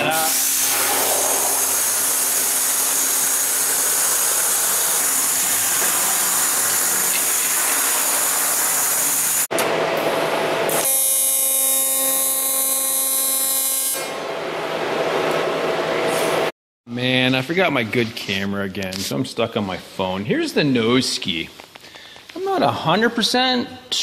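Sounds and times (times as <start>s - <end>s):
workshop noise hiss: 0.0s - 9.5s
welding arc buzzing: 0.0s - 14.1s.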